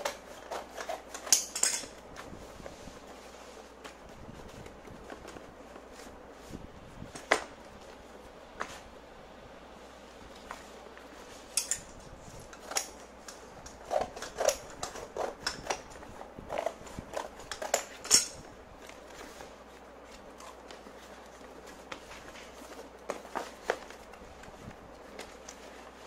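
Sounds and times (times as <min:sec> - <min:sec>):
scissors cutting cardboard: 0:00.0 - 0:02.0, 0:12.5 - 0:18.1.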